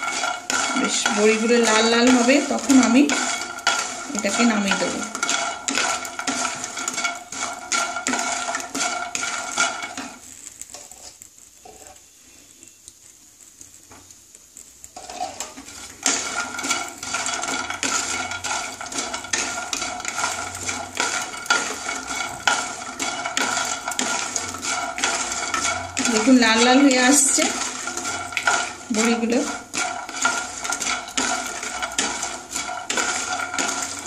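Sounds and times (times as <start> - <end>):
wooden spatula scraping a pan: 0.0 - 34.0.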